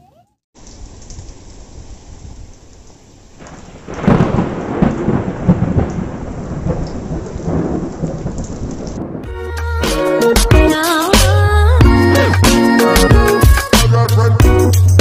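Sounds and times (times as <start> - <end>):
wind: 0.0 - 9.2
rain: 0.6 - 10.5
thunder rumbling: 3.3 - 9.5.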